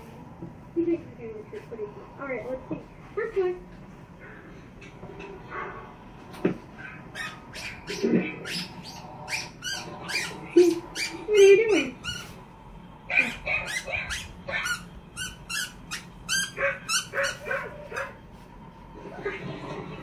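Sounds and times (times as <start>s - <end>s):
squeaky toy squeaks: 7.2s - 12.4s, 13.1s - 17.5s.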